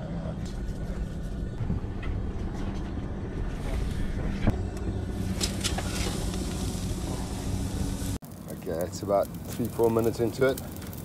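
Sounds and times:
boat engine humming: 0.0s - 8.2s.

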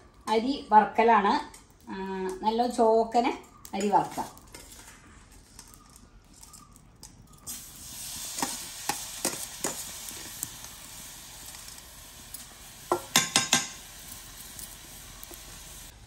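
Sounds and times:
rice sizzling in a pan: 7.4s - 16.0s
spoon clinking against pan: 12.9s - 13.8s.

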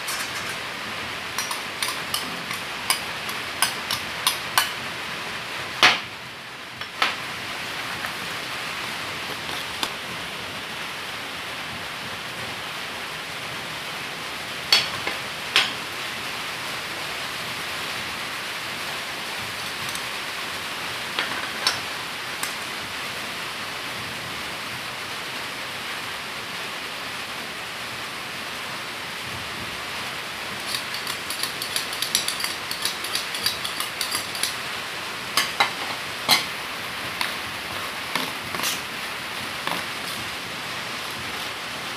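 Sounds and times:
metal spoon clinking on pan: 0.0s - 0.6s, 1.4s - 4.8s, 30.6s - 34.6s
steady background hiss: 0.0s - 41.9s.

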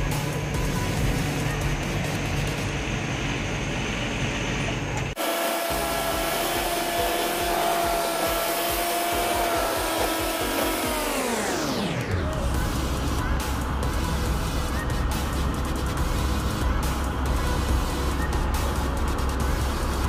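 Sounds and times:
truck engine and road rumble: 0.0s - 20.0s
low pulses: 5.2s - 20.0s.

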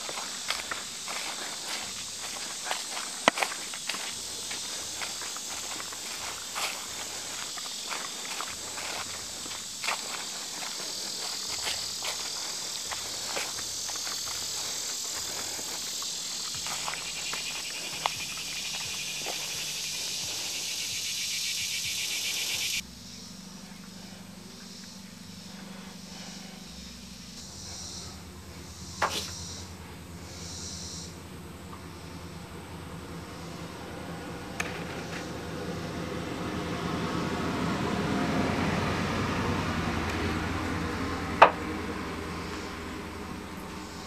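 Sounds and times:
low steady hum: 0.0s - 20.6s, 22.8s - 44.0s
footsteps crunching on dirt path: 0.0s - 22.8s
insects hissing: 0.0s - 44.0s.

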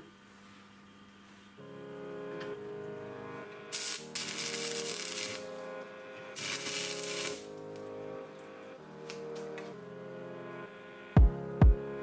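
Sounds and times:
background music: 1.6s - 12.0s
arc welding crackling: 3.6s - 5.7s, 6.4s - 9.6s.

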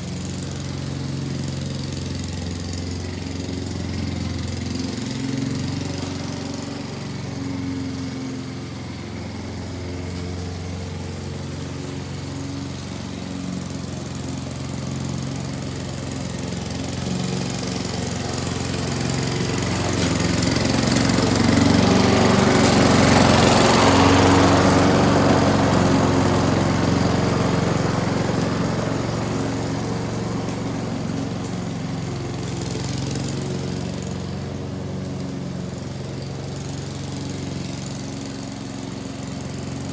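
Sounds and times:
lawn mower cutting grass: 0.0s - 39.9s.

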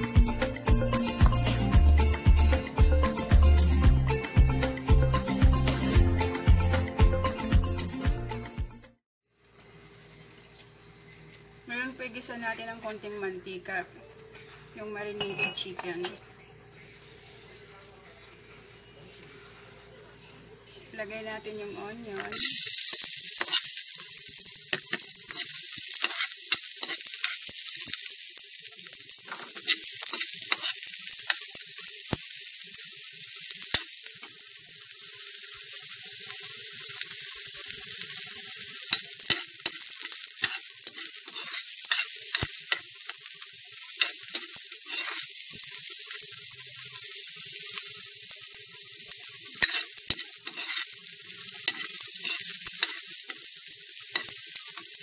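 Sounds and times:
chicken and onion sizzling in pan: 0.0s - 0.2s, 20.8s - 55.0s
utensil scraping a pan: 38.9s - 42.8s, 44.0s - 45.3s, 49.6s - 51.0s, 51.6s - 53.0s.

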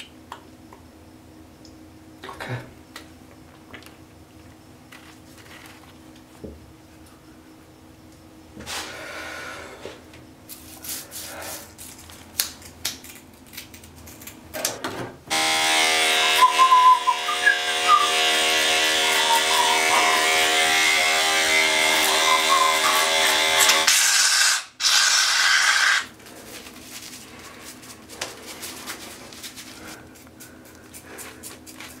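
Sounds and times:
electric hair clipper buzzing: 15.3s - 26.1s.

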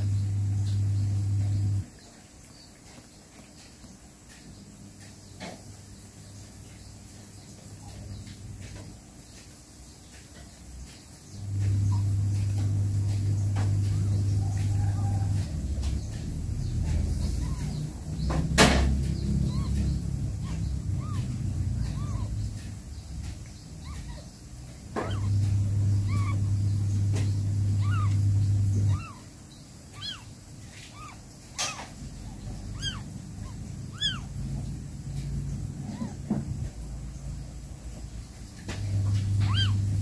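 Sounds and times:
low steady hum: 0.0s - 9.4s, 11.1s - 40.0s
kitten squeaking: 16.8s - 22.7s, 23.8s - 24.3s, 25.0s - 26.7s, 27.7s - 29.3s, 29.9s - 34.6s, 39.4s - 40.0s
sharp knocks: 18.2s - 20.7s.

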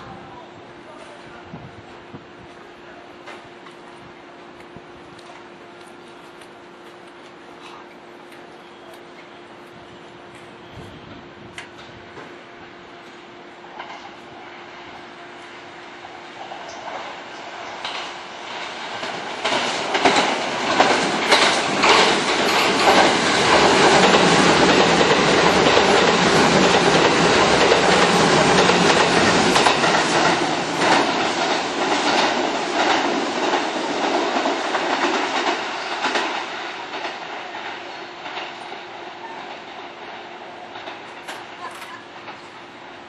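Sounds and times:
electric train passing at speed: 0.0s - 43.0s
wheels clattering over rail joints: 18.9s - 38.7s.

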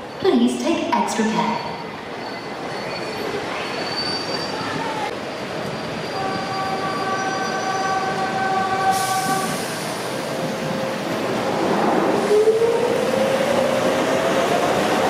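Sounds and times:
train whine: 1.7s - 15.0s
train hiss: 8.8s - 10.4s.

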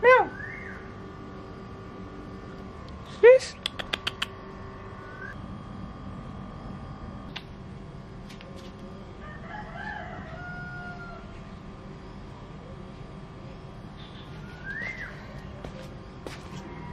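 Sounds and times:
sharp clicks: 3.6s - 4.4s
distant rooster crowing: 9.1s - 11.5s, 16.3s - 16.9s.

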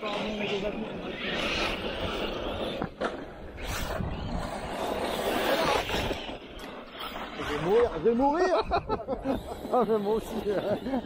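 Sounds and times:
rc trucks tyre and drivetrain noise: 0.0s - 11.0s.

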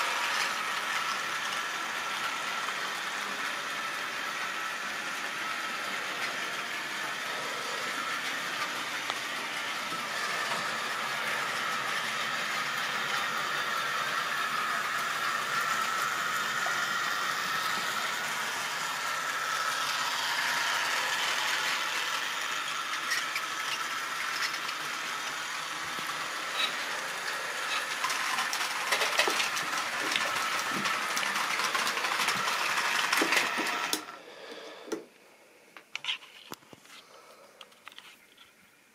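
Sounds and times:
model train motor whirring: 0.0s - 35.0s.

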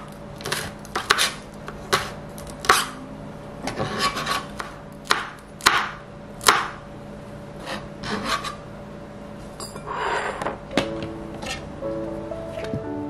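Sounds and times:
knife chopping on cutting board: 0.0s - 3.0s, 3.7s - 6.8s, 7.6s - 8.6s
knife scraping board: 0.4s - 3.0s, 3.7s - 4.7s, 7.6s - 8.6s, 9.8s - 10.6s.

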